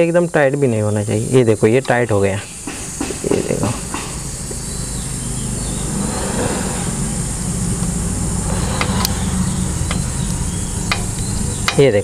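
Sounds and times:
vehicle engine rumble: 1.4s - 12.0s
light metallic clicks of gears: 9.8s - 12.0s.

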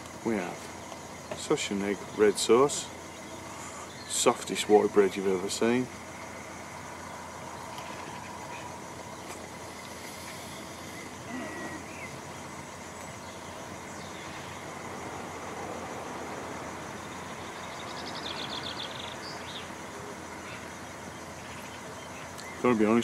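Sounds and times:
outdoor background noise: 0.0s - 23.0s
rapid bird trill: 6.5s - 14.8s, 17.0s - 19.8s.

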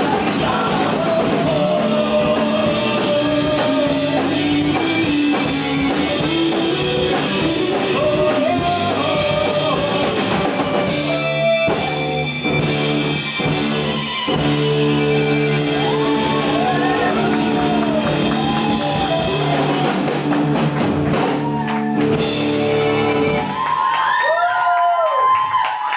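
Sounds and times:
shouted lead vocal: 0.0s - 5.5s, 6.3s - 10.9s, 15.4s - 20.2s
drum kit: 0.0s - 24.3s
electric guitars: 0.0s - 24.4s.

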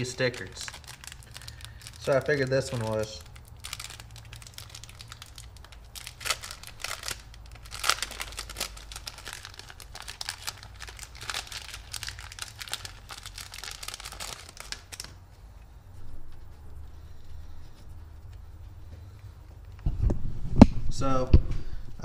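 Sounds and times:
packaging crinkling: 0.0s - 15.2s.

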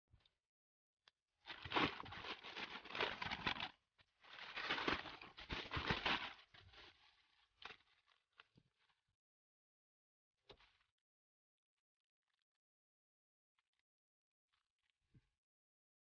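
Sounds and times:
plastic satchel crinkling: 1.5s - 8.1s.

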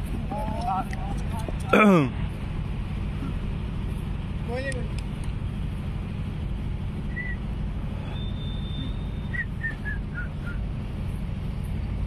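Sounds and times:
low outdoor rumble: 0.0s - 12.0s
thin high whistle: 7.1s - 7.4s, 8.0s - 10.6s.

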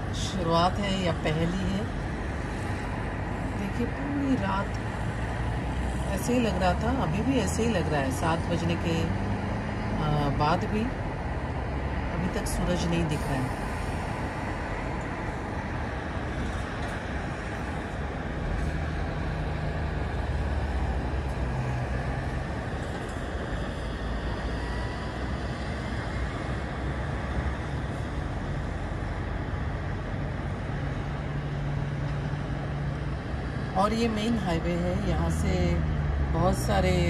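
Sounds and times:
distant motorway traffic rumble: 0.0s - 37.0s
heavy vehicle engine hum: 0.0s - 37.0s.

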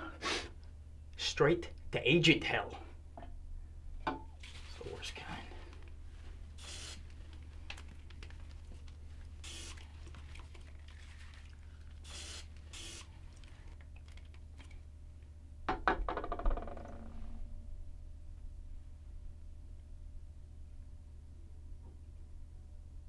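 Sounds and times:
spray hisses: 6.6s - 7.0s
low hum: 16.6s - 23.0s.

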